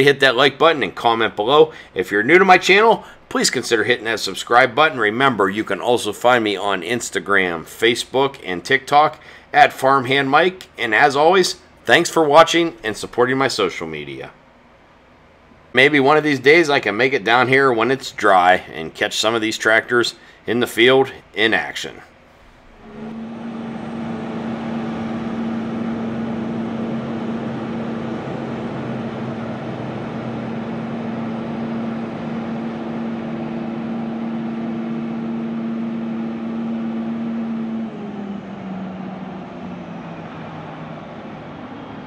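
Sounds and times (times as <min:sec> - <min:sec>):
drone hovering hum: 0:22.5 - 0:42.0.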